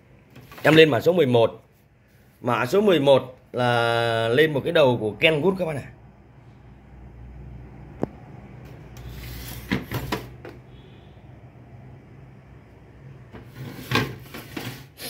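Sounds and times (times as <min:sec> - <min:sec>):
scraping on tiled floor: 0:09.0 - 0:10.3, 0:13.4 - 0:15.0.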